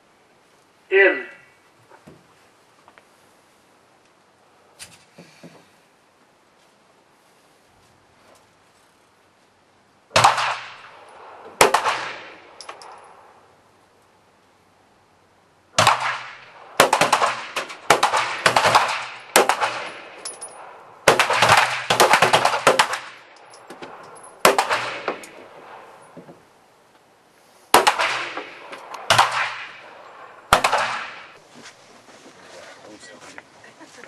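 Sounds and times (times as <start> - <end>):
pistol shots with ringing echo: 10.1 - 13.3, 15.8 - 26.0, 27.7 - 31.4.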